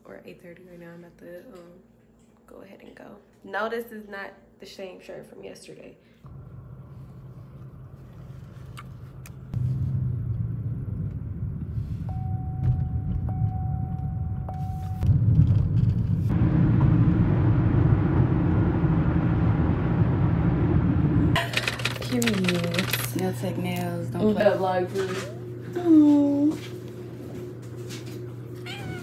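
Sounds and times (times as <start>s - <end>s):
car engine and road noise: 6.3s - 21.4s.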